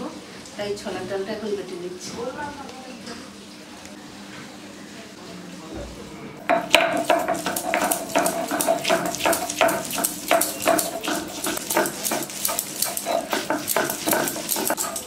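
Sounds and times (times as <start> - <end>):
grinding stone rasping: 6.5 - 15.0.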